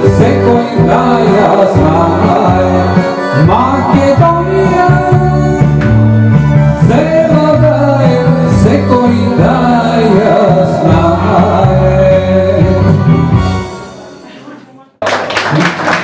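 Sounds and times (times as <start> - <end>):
man singing into microphone: 0.0 - 5.8, 6.7 - 13.4
instrumental backing music: 0.0 - 14.8.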